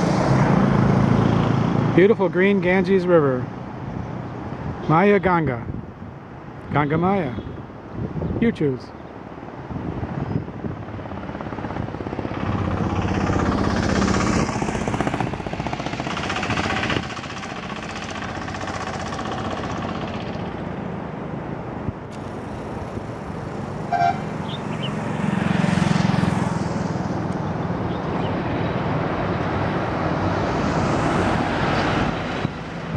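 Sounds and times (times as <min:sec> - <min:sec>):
car engine and tyre noise: 0:00.0 - 0:02.8, 0:09.3 - 0:32.9
car horn toot: 0:23.9 - 0:24.3.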